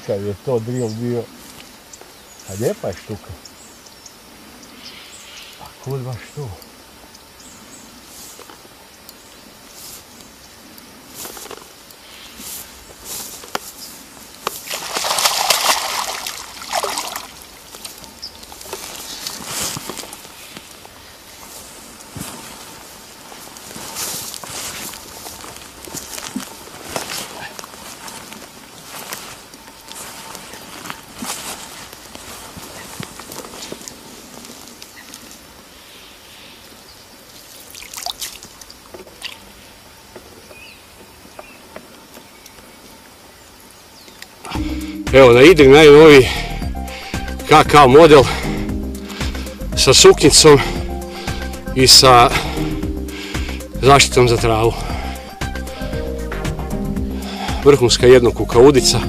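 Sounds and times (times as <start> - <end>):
water splashing: 14.4 - 20.2, 37.6 - 39.5.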